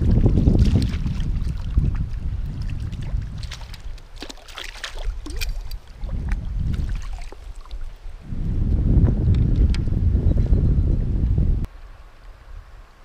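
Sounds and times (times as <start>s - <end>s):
water dripping: 0.0s - 8.0s
wind buffeting microphone: 0.0s - 13.0s
fish splashing at water surface: 2.7s - 5.8s
net dipping into water: 2.7s - 7.7s.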